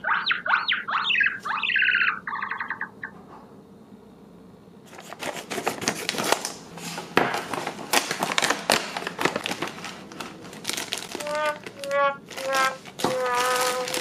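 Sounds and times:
foil bag tearing and crinkling: 4.9s - 14.0s
plastic bags rustling: 4.9s - 14.0s.

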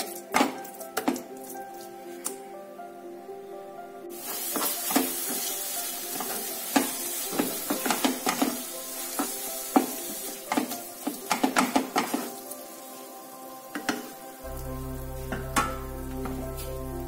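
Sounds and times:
food sizzling: 4.1s - 17.0s.

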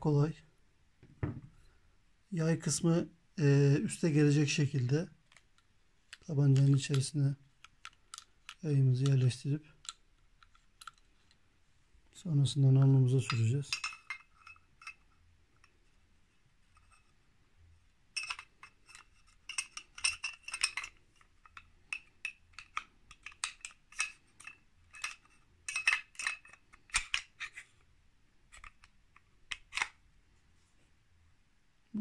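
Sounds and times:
pistol slide clicks and rattles: 7.6s - 8.6s, 9.8s - 11.4s, 18.2s - 27.7s, 28.5s - 30.0s.

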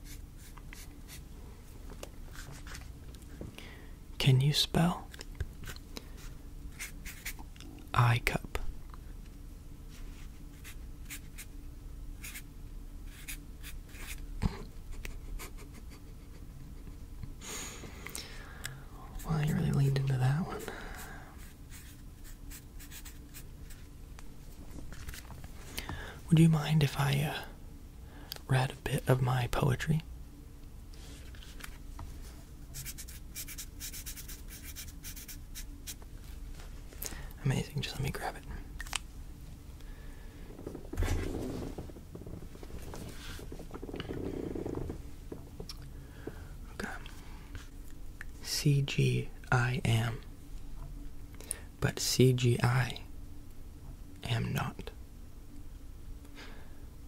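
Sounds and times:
faint steady hum: 0.0s - 57.0s
pen scratching on paper: 21.4s - 23.4s, 32.8s - 35.7s.

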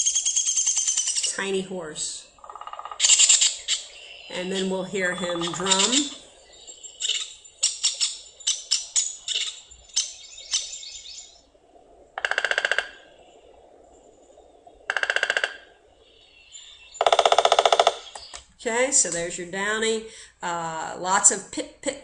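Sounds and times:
woodpecker high call notes: 0.0s - 11.3s, 14.9s - 18.4s
woodpecker drumming on wood: 2.4s - 3.8s, 12.2s - 13.0s, 14.9s - 15.7s, 17.0s - 18.4s.

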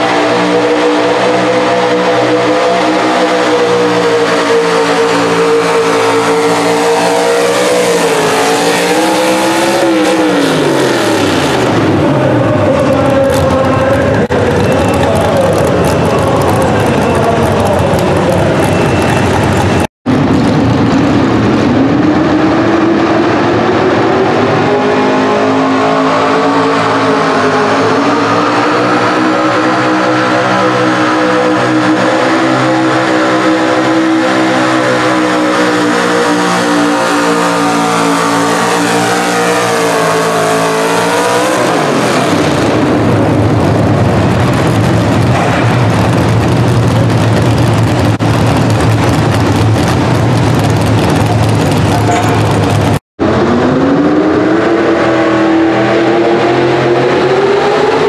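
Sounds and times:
truck engine at full throttle: 0.0s - 58.0s
engine idling: 43.0s - 53.0s.

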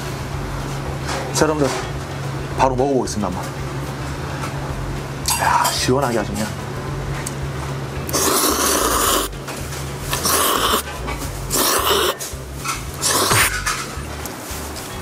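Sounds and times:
person slurping noodles: 8.1s - 9.4s, 10.1s - 12.2s, 13.0s - 13.6s.

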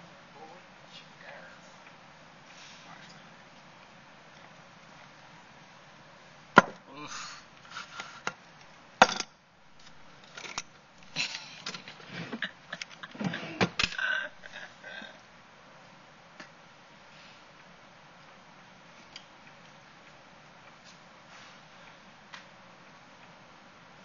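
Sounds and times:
rubbing and rustling: 11.8s - 13.8s.

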